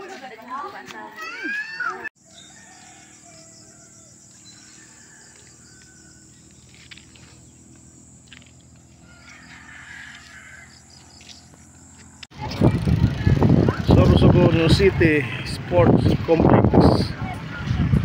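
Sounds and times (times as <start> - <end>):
birds chirping and cawing: 2.2 - 12.2.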